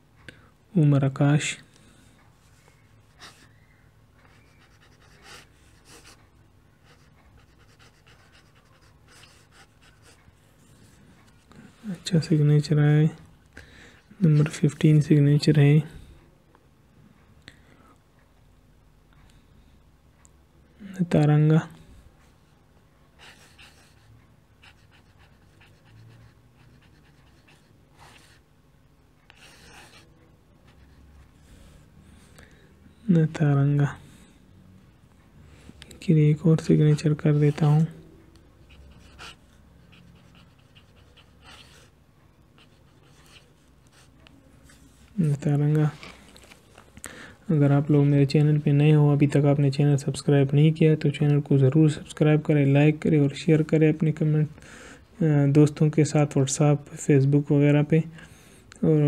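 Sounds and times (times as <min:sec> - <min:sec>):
pen nib scratching on paper: 0:06.8 - 0:11.0, 0:23.2 - 0:28.4, 0:29.2 - 0:31.1, 0:38.6 - 0:41.9.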